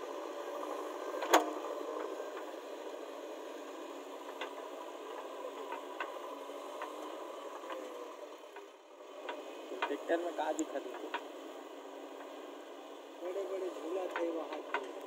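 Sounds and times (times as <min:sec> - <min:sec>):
diesel machine hum: 0:00.0 - 0:15.0
faint clicks: 0:04.0 - 0:11.4, 0:13.3 - 0:15.0.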